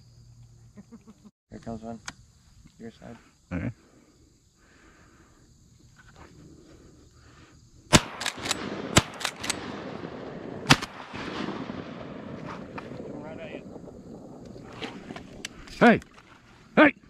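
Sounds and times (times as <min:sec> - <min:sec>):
shotgun shots: 0:07.9 - 0:13.4.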